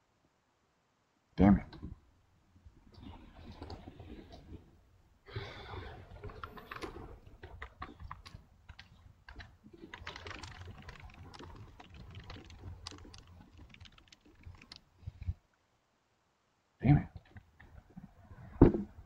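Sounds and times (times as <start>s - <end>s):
typing on computer keyboard: 6.1s - 14.9s.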